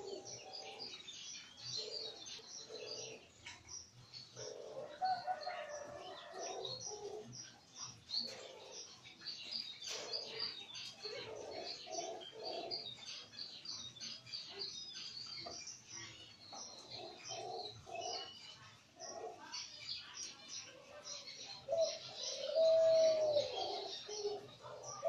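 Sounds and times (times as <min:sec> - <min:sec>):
doves cooing: 0:00.0 - 0:01.1, 0:01.7 - 0:03.4, 0:04.4 - 0:07.4, 0:08.2 - 0:09.1, 0:09.8 - 0:13.1, 0:16.7 - 0:18.4, 0:20.8 - 0:25.0
small birds chirping: 0:00.0 - 0:25.0.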